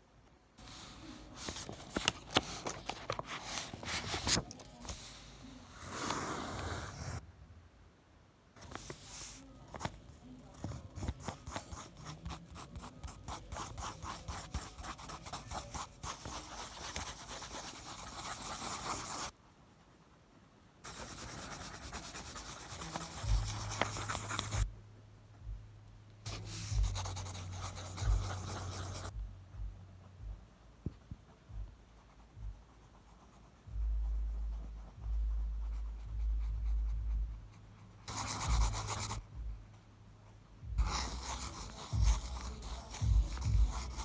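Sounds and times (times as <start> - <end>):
pencil scratching on paper: 0.6 - 7.2, 8.6 - 24.8, 26.2 - 29.1, 31.9 - 39.3, 40.8 - 44.0
low thumps: 25.4 - 25.8, 29.1 - 31.8.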